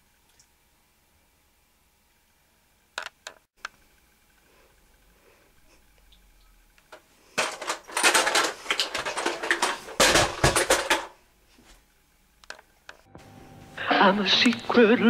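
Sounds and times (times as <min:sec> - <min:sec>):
knocks and thumps in bed: 0:09.5 - 0:11.1.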